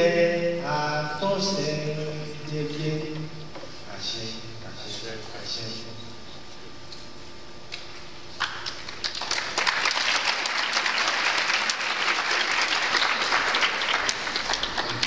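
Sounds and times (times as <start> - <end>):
audience applauding: 8.4 - 15.0.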